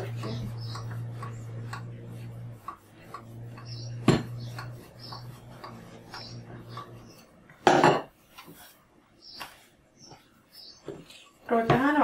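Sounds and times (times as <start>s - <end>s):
rolling pin rolling dough: 0.0s - 12.0s
rolling pin knocking on board: 2.6s - 6.9s.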